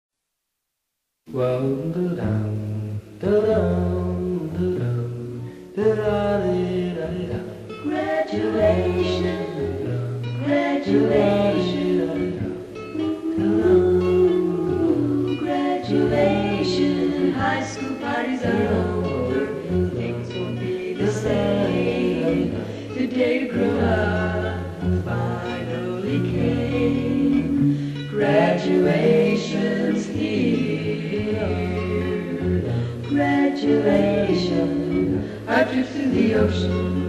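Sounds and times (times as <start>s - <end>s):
close-harmony singing: 3.2s - 37.0s.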